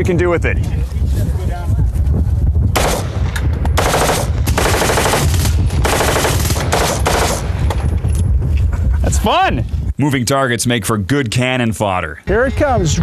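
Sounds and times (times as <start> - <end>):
rifle automatic fire bursts: 2.8 - 3.1, 3.8 - 7.5.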